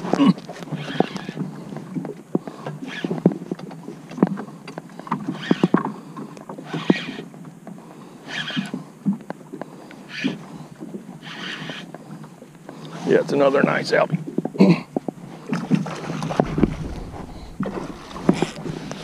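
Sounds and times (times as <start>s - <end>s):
knocks and clicks: 16.2s - 19.0s.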